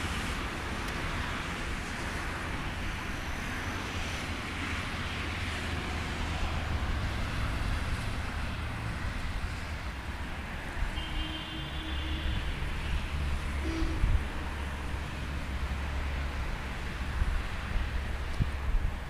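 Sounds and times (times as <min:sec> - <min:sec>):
wind buffeting microphone: 0:16.4 - 0:19.0.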